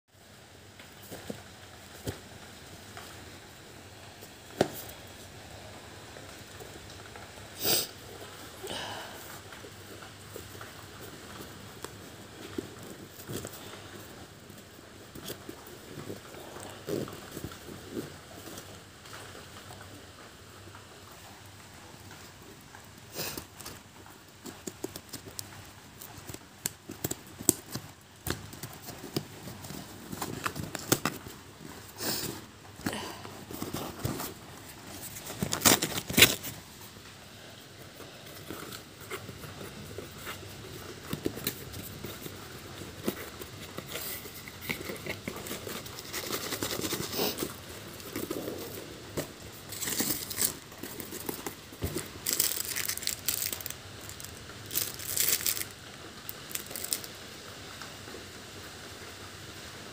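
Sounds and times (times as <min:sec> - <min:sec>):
plastic wrapping crinkling: 0:22.0 - 0:57.2
cardboard ripping: 0:33.4 - 0:36.8, 0:38.2 - 0:55.7.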